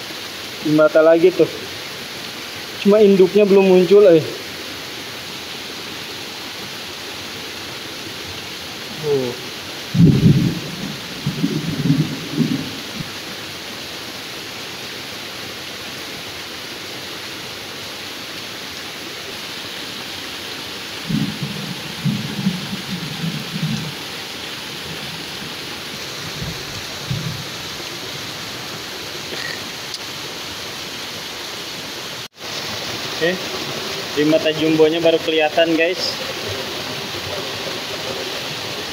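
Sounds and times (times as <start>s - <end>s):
heavy rain on stream and leaves: 0.0s - 38.9s
low rumbles: 9.9s - 13.1s.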